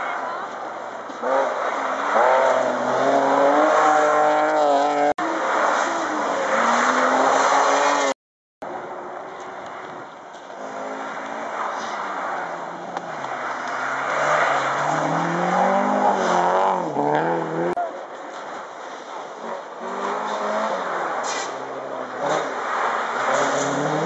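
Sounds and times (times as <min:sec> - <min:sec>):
rally cars passing at speed: 0:00.0 - 0:08.2, 0:09.7 - 0:24.0.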